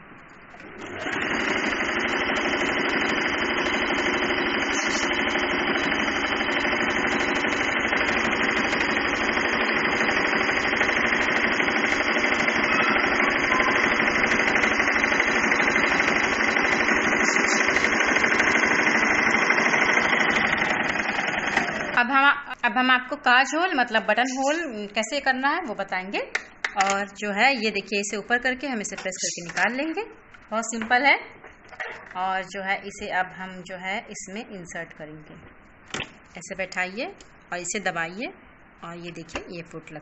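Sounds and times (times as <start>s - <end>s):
sewing machine stitching: 0.5s - 22.0s.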